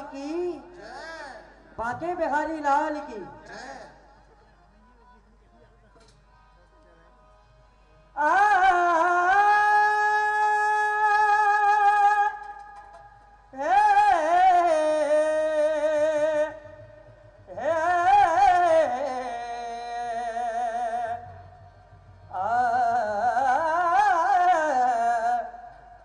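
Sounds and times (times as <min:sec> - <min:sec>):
faint low accompaniment: 0:15.1 - 0:24.3.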